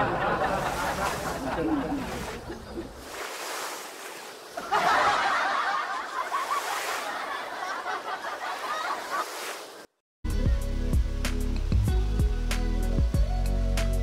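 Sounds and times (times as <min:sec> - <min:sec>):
small waves washing onto sand: 0:00.0 - 0:09.9.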